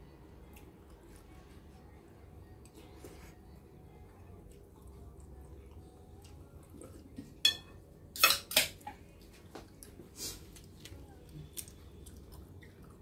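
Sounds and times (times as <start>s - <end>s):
metal spoon clinking on ceramic plate: 7.4s - 8.7s.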